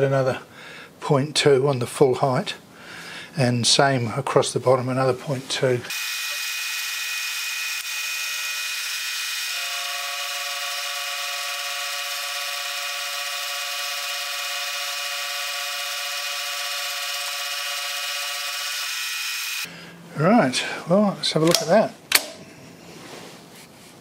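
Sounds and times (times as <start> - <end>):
milling machine whine: 5.9 - 19.7.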